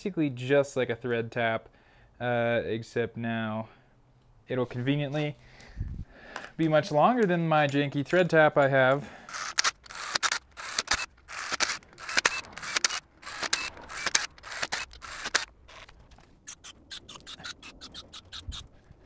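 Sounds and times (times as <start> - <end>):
cordless drill running: 9.2 - 15.9.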